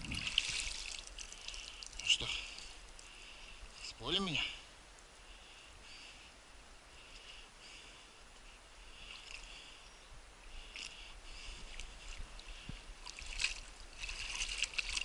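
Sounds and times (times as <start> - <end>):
sharp splashes and knocks: 0.0 - 2.6, 13.0 - 15.0
paddle splashing and dripping: 0.0 - 3.4, 10.8 - 15.0.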